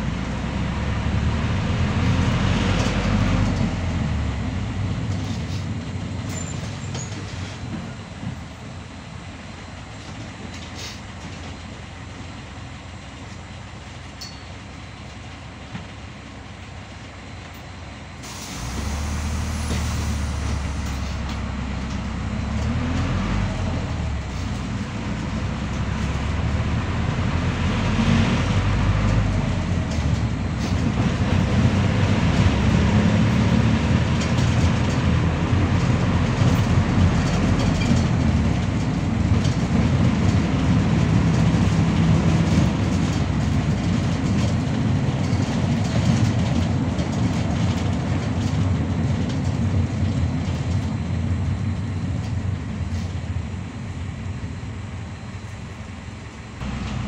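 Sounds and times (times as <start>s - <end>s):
bus body and seats rattling: 0.0s - 57.0s
bus diesel engine droning: 0.0s - 57.0s
air hiss: 18.2s - 21.3s.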